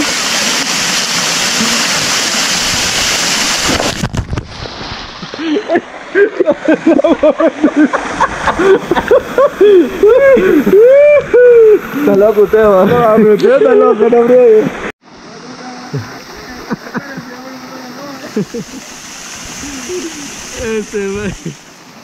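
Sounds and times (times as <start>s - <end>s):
waterfall rushing: 0.0s - 6.2s, 6.8s - 22.0s
quieter water: 0.0s - 22.0s
person vocalizing: 19.6s - 21.6s.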